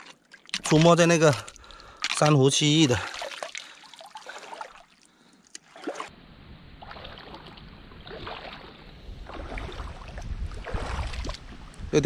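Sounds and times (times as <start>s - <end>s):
seawater sloshing in rock pools: 0.0s - 12.0s
wind rumbling on microphone: 6.2s - 12.0s.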